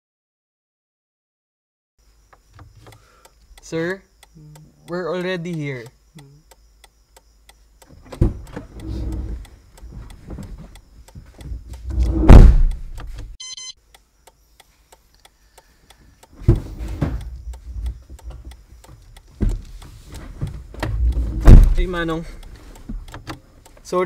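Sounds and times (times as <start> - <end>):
fast steady ticking: 2.9 - 13.2, 17.2 - 24.0
car door shutting: 7.9 - 10.7, 11.5 - 13.3, 16.4 - 18.5, 19.4 - 22.0.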